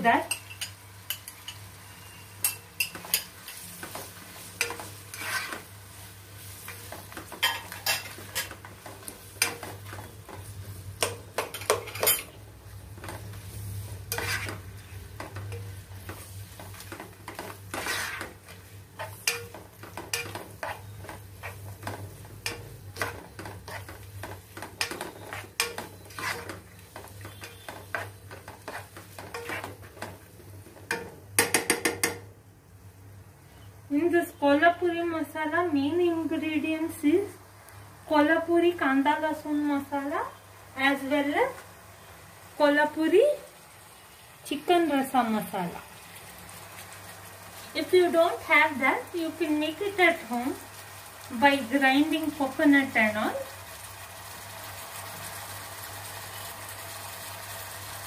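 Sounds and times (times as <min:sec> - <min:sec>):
food sizzling: 0:00.0 - 0:32.3, 0:34.8 - 0:58.0
spoon scraping a pan: 0:00.2 - 0:05.8, 0:06.4 - 0:12.4, 0:13.0 - 0:30.2.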